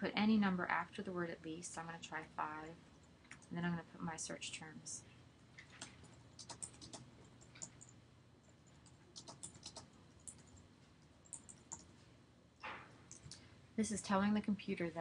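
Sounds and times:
typing on computer keyboard: 5.6 - 10.6, 11.2 - 11.9, 13.1 - 13.4.

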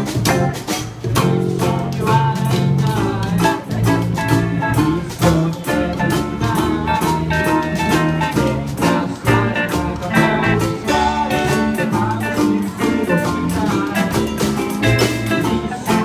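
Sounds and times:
small drum beat: 0.0 - 16.0
ukuleles strummed: 0.0 - 16.0
upright double bass: 0.0 - 16.0.

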